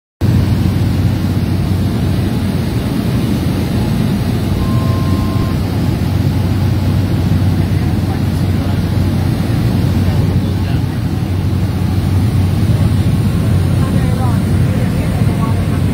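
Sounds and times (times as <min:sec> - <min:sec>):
propeller plane engine drone: 0:00.2 - 0:15.9.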